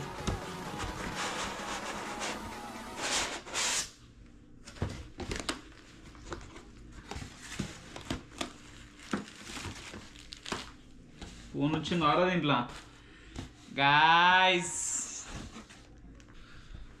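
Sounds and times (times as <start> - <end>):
packing material rustling: 5.2 - 10.9.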